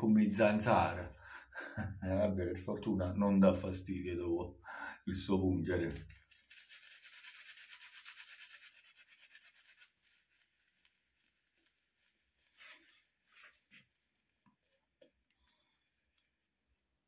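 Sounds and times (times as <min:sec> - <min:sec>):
shaving brush scratching: 0:06.0 - 0:14.4.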